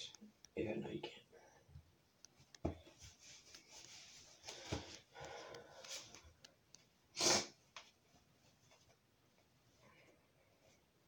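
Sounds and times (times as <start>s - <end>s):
clothing rustling: 2.4s - 7.0s
person sniffing: 7.1s - 7.6s.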